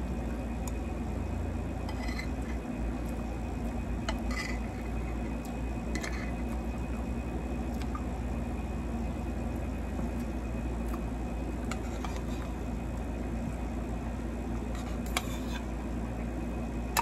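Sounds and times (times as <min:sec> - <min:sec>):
low hum: 0:00.0 - 0:17.0
fork scraping ceramic plate: 0:01.9 - 0:02.6, 0:04.1 - 0:04.8, 0:11.7 - 0:12.5, 0:14.7 - 0:15.7.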